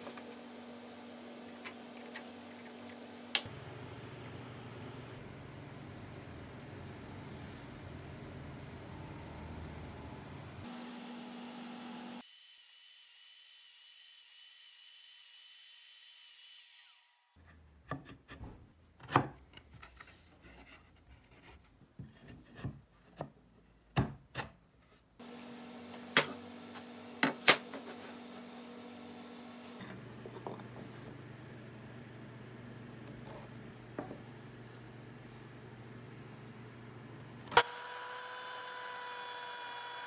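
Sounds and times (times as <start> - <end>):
low shop hum: 0.0 - 12.3, 16.8 - 40.0
wood knocking on workbench: 34.0 - 34.2.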